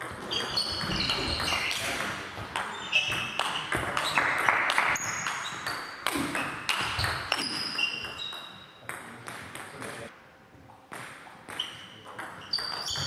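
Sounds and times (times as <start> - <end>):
shoes squeaking on floor: 0.1 - 4.3, 4.9 - 8.8, 11.5 - 13.0.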